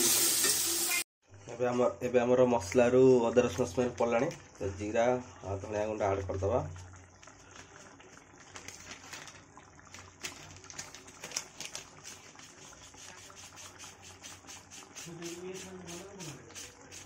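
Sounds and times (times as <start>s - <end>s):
masala sizzling in oil: 0.0s - 1.0s, 7.4s - 17.0s.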